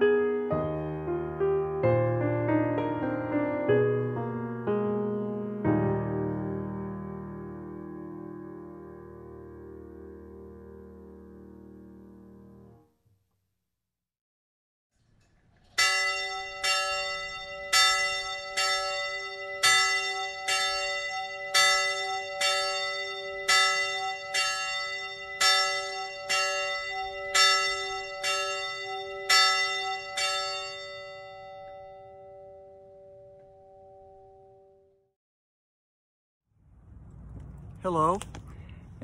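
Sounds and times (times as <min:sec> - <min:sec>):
bell tolling: 0:15.8 - 0:34.8.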